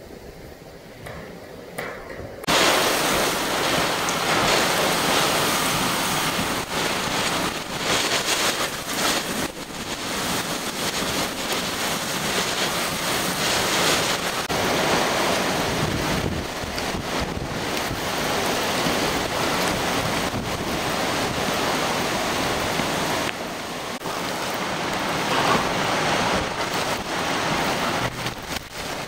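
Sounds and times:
wind and driving rain: 0.0 - 29.0
wind buffeting microphone: 0.3 - 29.0.

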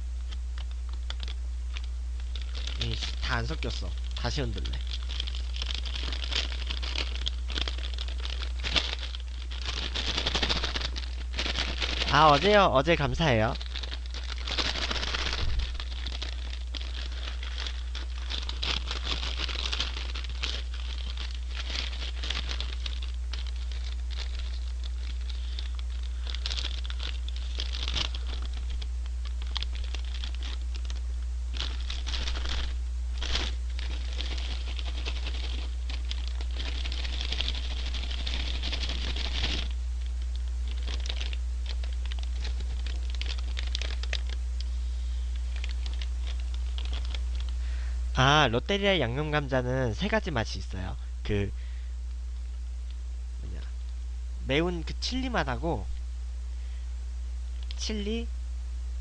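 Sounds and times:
steady low hum: 0.0 - 59.0
paper bag rattling and rustling: 2.2 - 44.4, 45.4 - 47.5.

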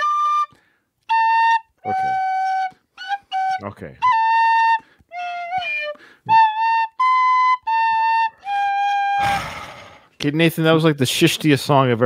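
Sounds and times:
tin whistle tune: 0.0 - 9.4
breathy noise burst: 9.2 - 10.2.

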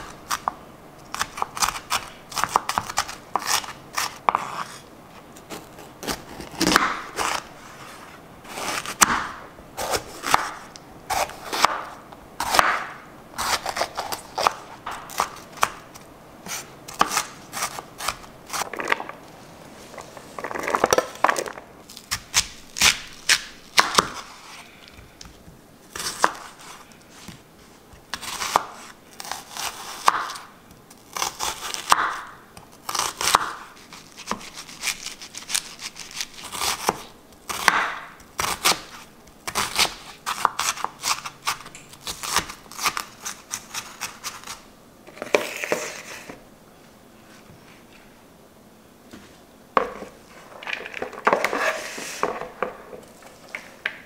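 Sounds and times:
crunchy slicing of vegetables: 1.1 - 4.8, 5.4 - 19.1, 28.1 - 46.4.

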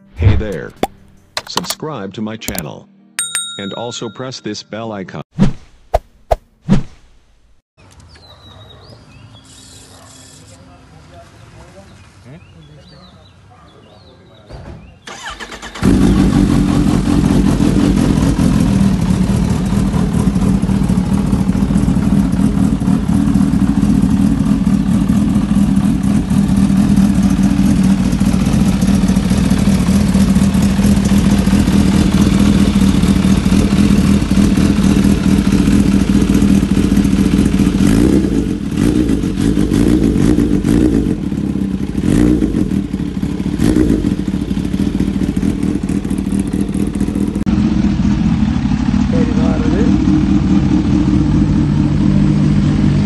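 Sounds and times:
motorcycle engine idling: 15.1 - 53.0.

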